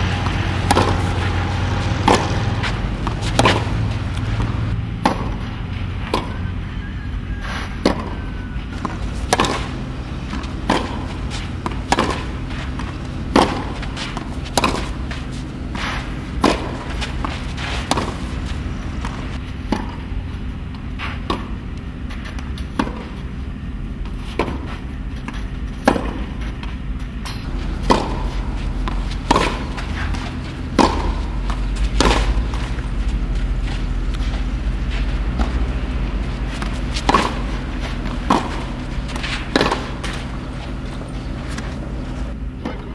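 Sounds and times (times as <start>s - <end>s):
ball bouncing: 0.0s - 5.5s, 7.8s - 15.4s, 24.4s - 42.9s
tennis balls struck with rackets: 0.0s - 6.4s, 7.7s - 23.4s, 24.0s - 42.9s
steady low hum: 0.0s - 42.9s.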